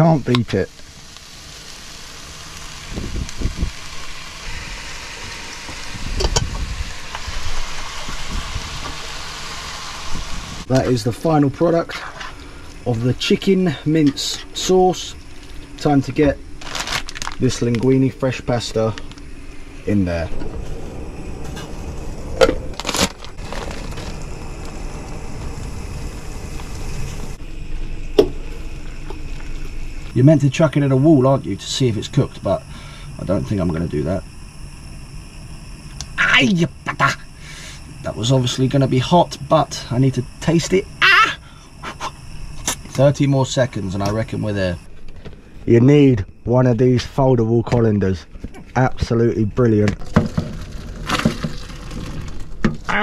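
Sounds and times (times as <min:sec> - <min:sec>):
pan hissing on gas hob: 0:00.0 - 0:20.6, 0:21.2 - 0:44.9
low steady hum: 0:00.0 - 0:53.0
plastic packet rustle: 0:16.6 - 0:18.0, 0:22.7 - 0:24.3.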